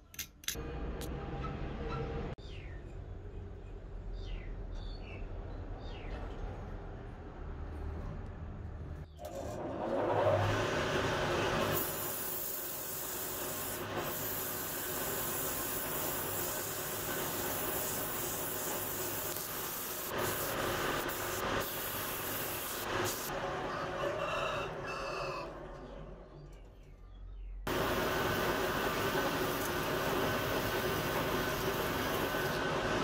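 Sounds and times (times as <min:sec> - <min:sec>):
sanding scraping hiss: 0:11.7 - 0:23.3.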